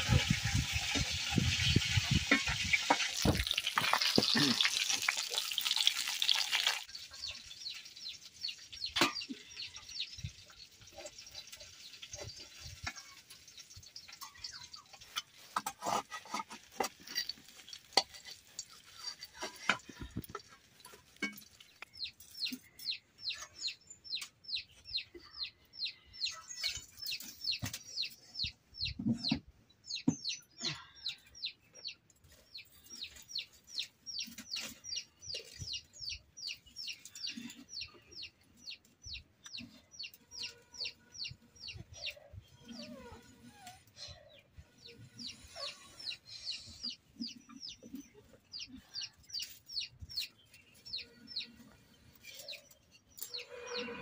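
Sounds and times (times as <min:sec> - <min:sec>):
chick peeping: 0:00.0 - 0:16.4, 0:21.6 - 0:53.8
firewood sticks knocking: 0:02.1 - 0:06.0.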